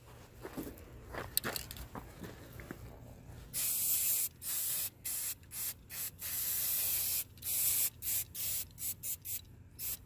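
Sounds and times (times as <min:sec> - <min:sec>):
spray paint can hissing: 0:03.5 - 0:10.0.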